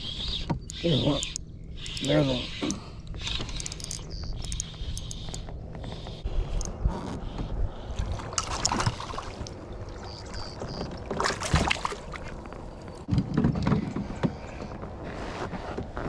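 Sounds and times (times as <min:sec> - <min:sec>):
fish splashing in water: 0:08.0 - 0:12.6.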